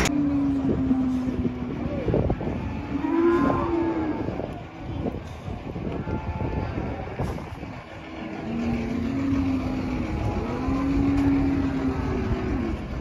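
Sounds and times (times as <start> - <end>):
low rumble: 0.0 - 13.0
truck engine revving: 0.0 - 13.0.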